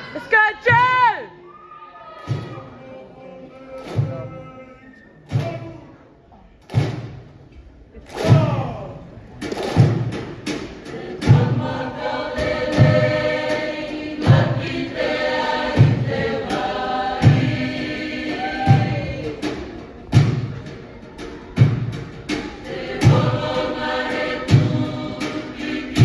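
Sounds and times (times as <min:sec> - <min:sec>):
group singing in harmony: 0:02.2 - 0:05.6, 0:09.6 - 0:26.0
heavy low beat: 0:08.2 - 0:26.0.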